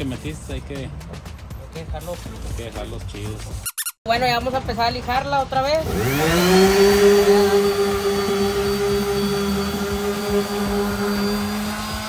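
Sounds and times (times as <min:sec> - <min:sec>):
orbital sander on wood: 0:05.8 - 0:12.0.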